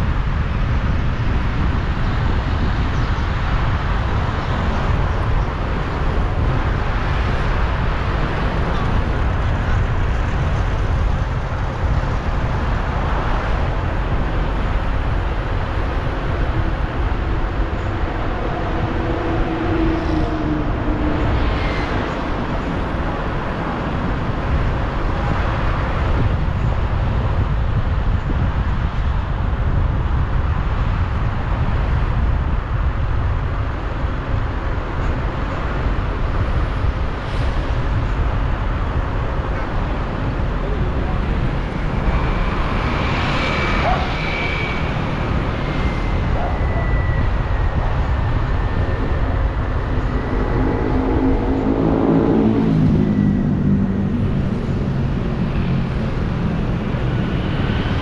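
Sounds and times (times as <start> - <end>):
street traffic rumble: 0.0 - 58.0
engine tone rising: 40.4 - 58.0.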